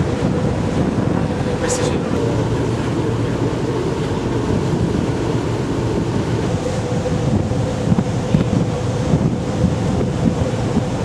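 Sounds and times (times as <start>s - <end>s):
ferry engine drone: 0.0s - 11.0s
wind buffeting microphone: 0.0s - 11.0s.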